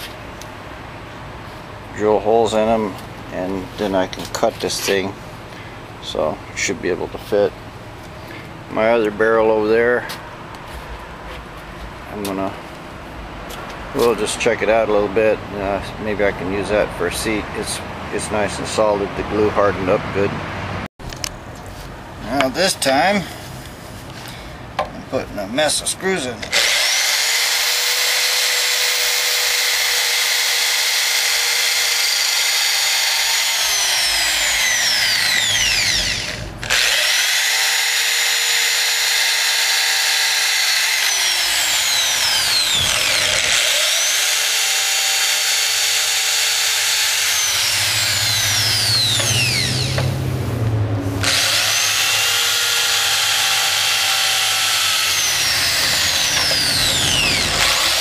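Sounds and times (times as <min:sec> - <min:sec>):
electric drill boring through metal: 0:26.4 - 0:50.0, 0:51.2 - 0:58.0.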